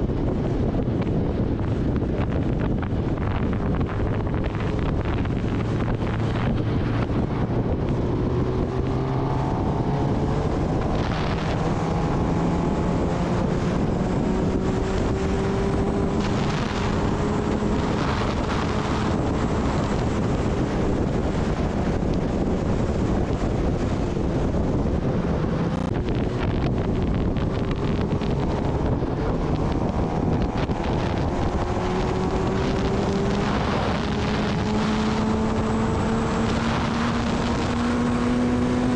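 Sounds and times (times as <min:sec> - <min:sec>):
motorcycle engine running: 0:00.0 - 0:38.9
wind noise on microphone: 0:00.0 - 0:38.9.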